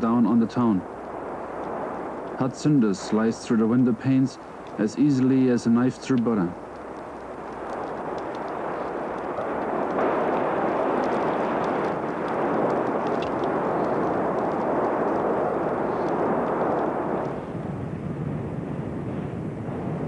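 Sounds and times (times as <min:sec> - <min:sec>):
volcanic eruption rushing noise: 0:00.0 - 0:20.0
faint ticks: 0:06.0 - 0:17.4.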